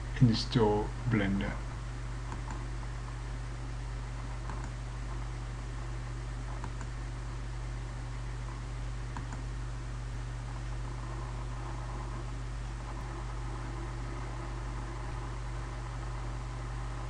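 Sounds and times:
low background hum and hiss: 0.0s - 17.0s
faint computer mouse clicks: 2.3s - 2.6s, 4.4s - 4.8s, 6.5s - 6.9s, 9.2s - 9.5s.

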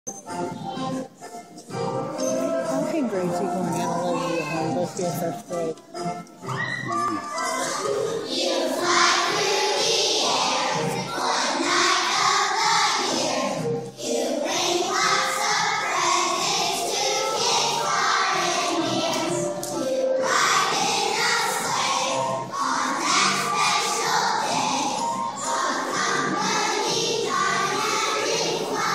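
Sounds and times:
children singing as a choir: 7.4s - 28.9s.

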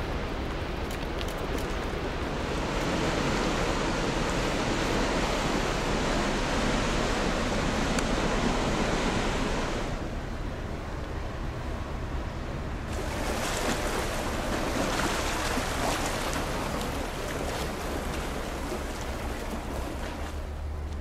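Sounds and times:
water splashing against shore: 12.9s - 20.7s.

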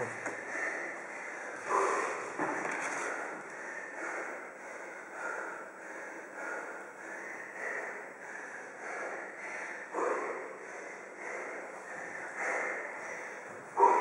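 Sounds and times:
man panting hard: 0.0s - 14.0s.

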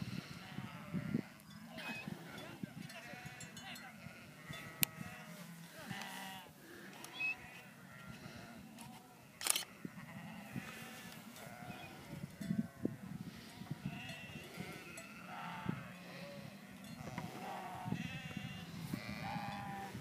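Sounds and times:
sheep bleating: 0.4s - 6.5s, 9.2s - 11.9s, 13.8s - 20.0s.

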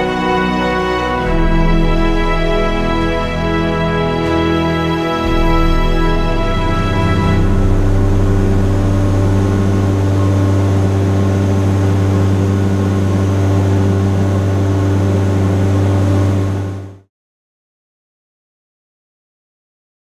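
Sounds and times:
propeller aircraft cabin drone: 5.2s - 17.0s.

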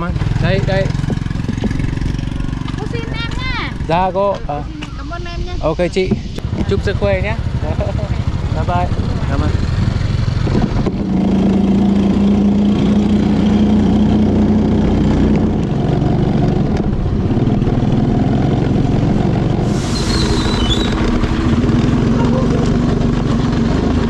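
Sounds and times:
motorbike engine running: 0.0s - 24.0s
short high hiss: 19.7s - 20.6s.

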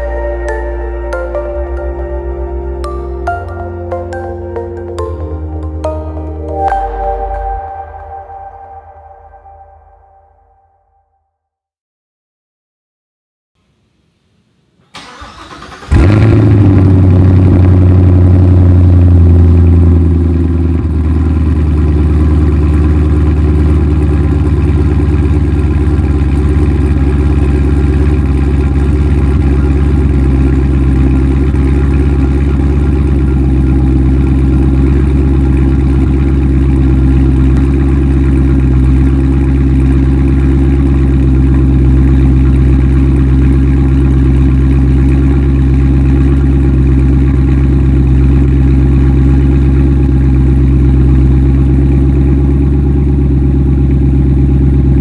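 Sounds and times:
car engine idling: 15.0s - 55.0s.

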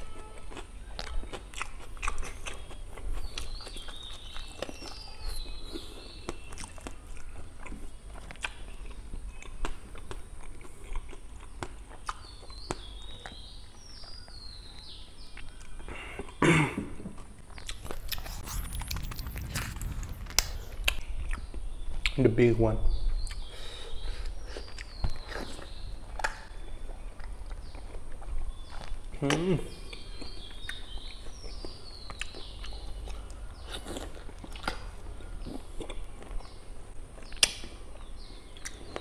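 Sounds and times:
wet chewing and crunching: 0.0s - 16.4s, 17.0s - 22.2s, 24.3s - 39.0s
lip smacks: 37.2s - 37.7s.

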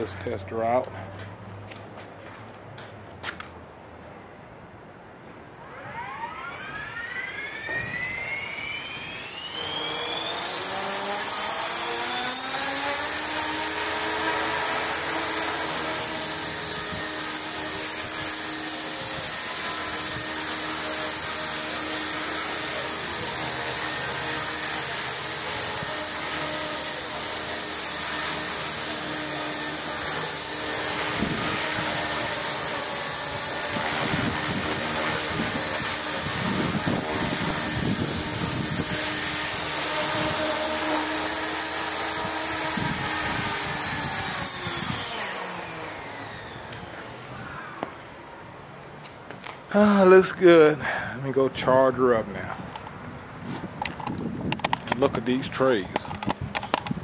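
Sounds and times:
rc helicopter rotor whine: 5.2s - 48.6s.

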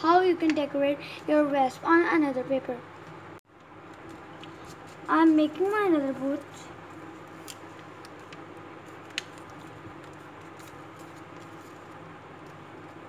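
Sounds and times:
low room hum: 0.0s - 13.0s
paper being folded: 3.8s - 13.0s.

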